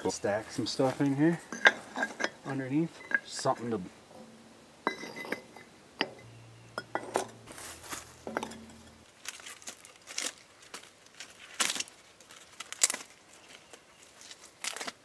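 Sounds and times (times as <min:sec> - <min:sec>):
bark crackling and rustling: 0:07.2 - 0:15.0.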